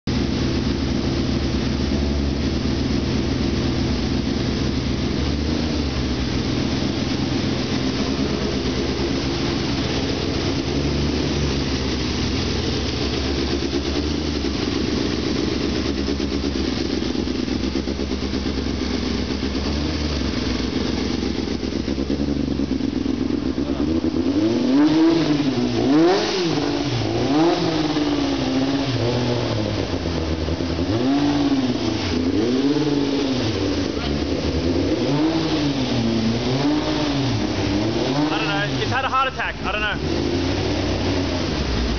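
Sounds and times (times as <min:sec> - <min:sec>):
race car engine idling and revving: 0:00.0 - 0:41.9.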